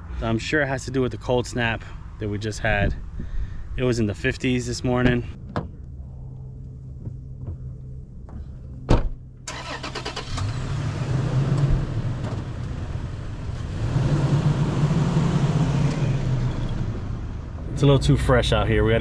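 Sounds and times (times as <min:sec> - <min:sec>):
car door shutting: 0:08.9 - 0:09.8
truck engine pulling away: 0:09.5 - 0:18.9.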